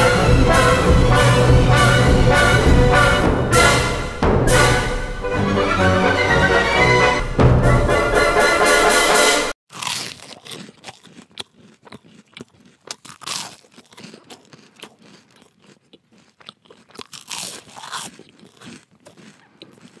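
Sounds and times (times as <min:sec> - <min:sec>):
person crunching and chewing: 0:09.7 - 0:20.0.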